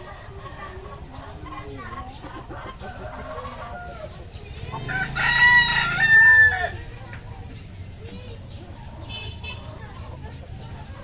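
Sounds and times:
hen clucking: 0.0s - 7.2s
rooster crowing: 4.8s - 6.8s.

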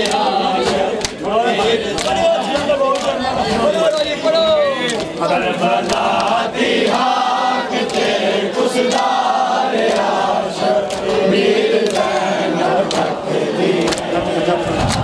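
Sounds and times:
sharp slaps: 0.0s - 4.1s, 4.8s - 5.2s, 11.8s - 12.2s, 13.8s - 14.1s
men chanting in unison: 0.0s - 15.0s.

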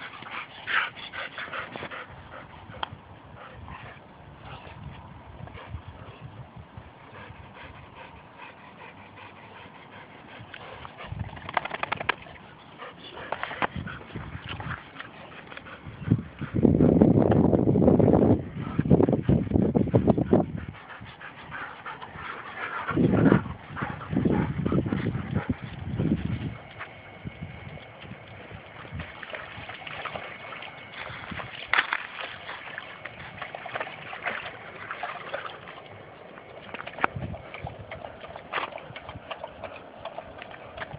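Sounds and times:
dogs clicking and scuffling: 9.9s - 16.6s, 18.6s - 40.9s
dog splashing in water: 11.3s - 12.5s, 28.6s - 40.9s.

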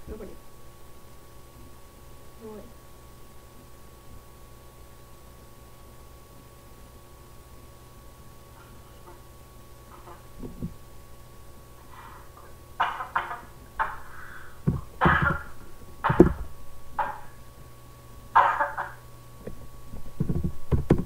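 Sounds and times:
microphone bumps: 10.0s - 10.8s, 14.6s - 17.2s, 19.5s - 21.0s.

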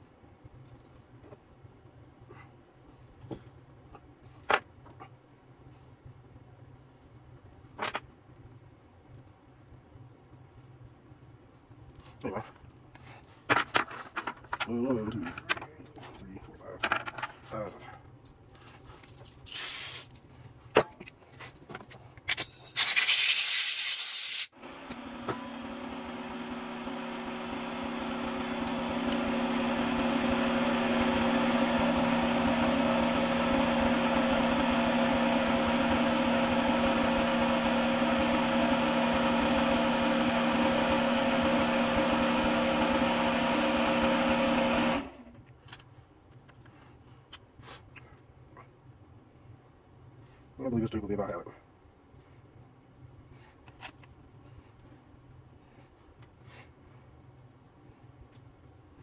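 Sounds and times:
short loud hiss: 19.5s - 20.1s
machine motor hum: 24.6s - 45.2s.

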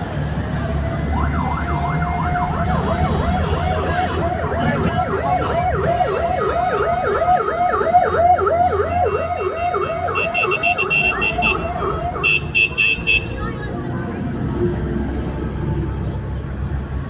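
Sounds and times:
motorcycle engines rumbling: 0.0s - 17.0s
higher-pitched siren: 1.0s - 12.3s
motorcycle siren yelping: 1.0s - 12.6s.

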